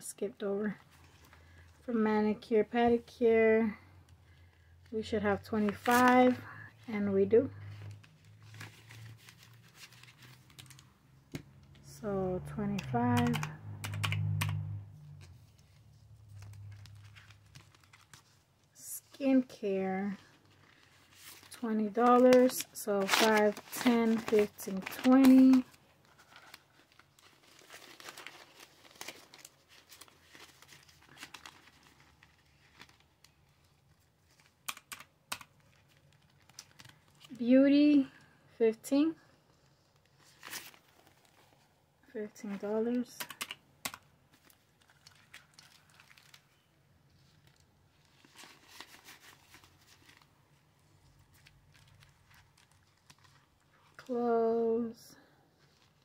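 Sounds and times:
paper bills rustling: 7.6 - 10.9, 15.2 - 18.6, 20.1 - 37.4, 42.4 - 53.8.

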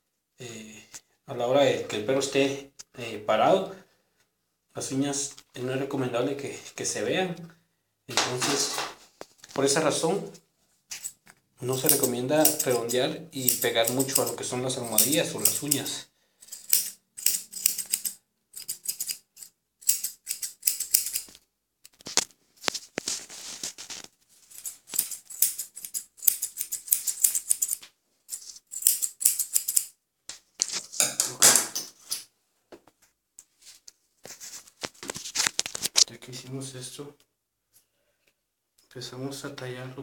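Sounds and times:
grooming scissors snipping: 11.8 - 15.9, 16.6 - 22.3, 24.5 - 27.8, 28.7 - 29.9.

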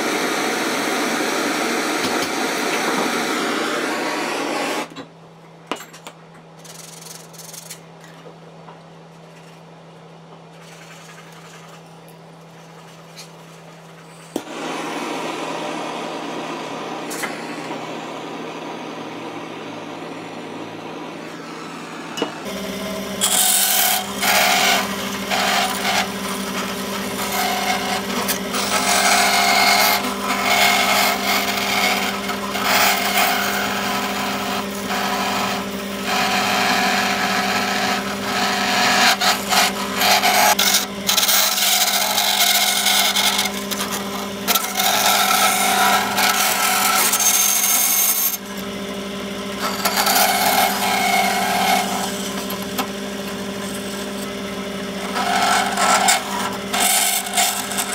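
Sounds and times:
bandsaw motor hum: 0.0 - 5.0, 12.6 - 57.9
saw blade cutting copper: 22.2 - 48.7, 49.6 - 54.3, 55.0 - 57.9.

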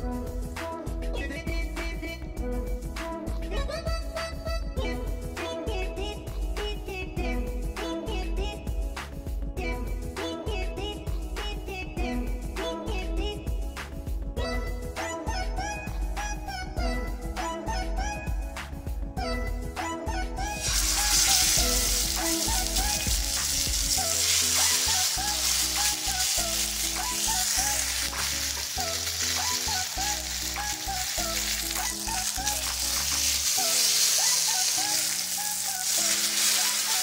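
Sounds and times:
fish sizzling in hot oil: 20.6 - 37.0.

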